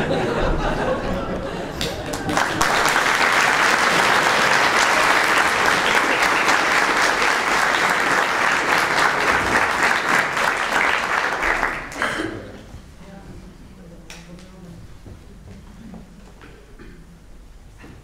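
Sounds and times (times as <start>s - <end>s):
audience applauding: 1.7s - 12.3s.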